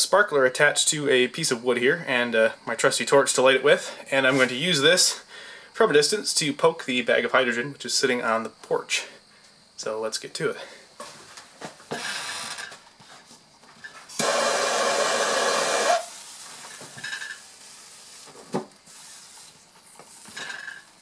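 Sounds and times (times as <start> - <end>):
gas torch hissing: 14.1 - 20.6
sparkler fizzing: 14.1 - 20.9.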